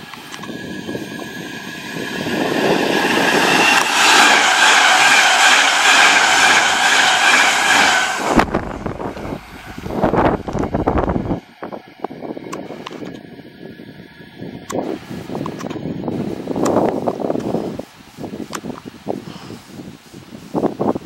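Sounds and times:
train passing with whine: 0.0s - 18.5s
train rumble with knocks: 0.0s - 18.9s.

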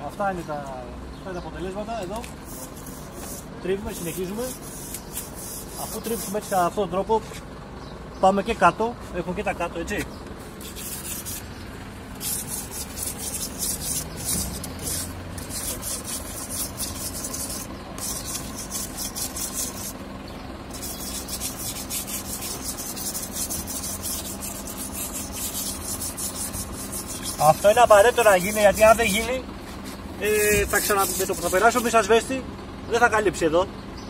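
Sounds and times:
scraper rasping on masonry wall: 2.2s - 7.4s, 10.5s - 20.0s, 20.6s - 32.1s.

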